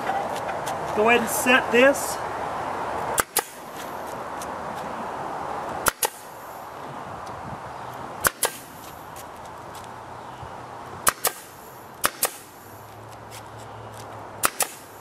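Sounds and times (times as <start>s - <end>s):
nail gun firing: 3.2s - 3.6s, 5.8s - 6.2s, 8.2s - 8.7s, 11.0s - 12.5s, 14.4s - 14.9s.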